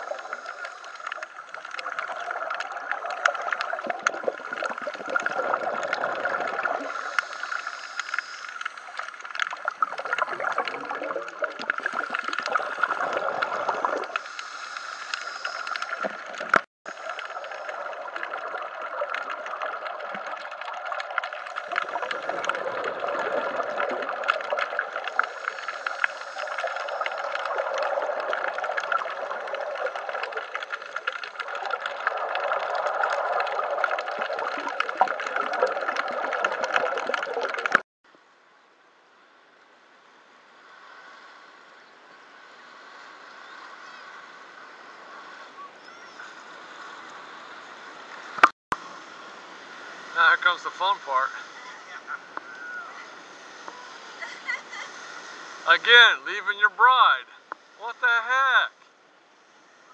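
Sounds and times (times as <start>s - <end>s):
bubbles gurgling underwater: 0.0s - 7.3s, 9.3s - 14.2s, 15.8s - 37.8s
steady hiss: 0.0s - 35.4s, 38.1s - 59.9s
diver breathing through regulator: 6.6s - 9.2s, 11.8s - 16.1s, 24.7s - 29.6s.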